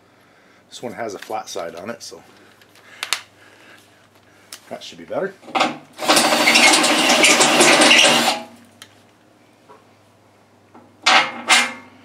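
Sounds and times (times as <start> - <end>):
cordless drill cutting steel: 6.0 - 8.5.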